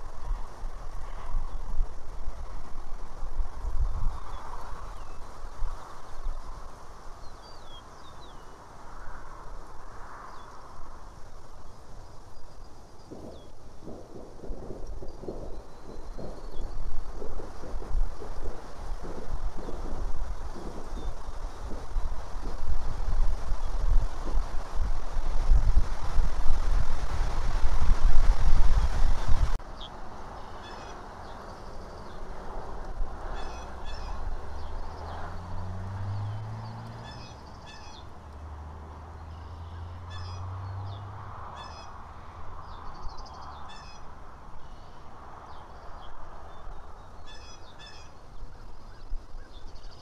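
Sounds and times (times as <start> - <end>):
steady rustle: 0.0 - 29.8
wind rumble on microphone: 0.0 - 50.0
bird chirps: 33.4 - 35.2, 36.1 - 38.1, 39.2 - 41.9, 45.6 - 50.0.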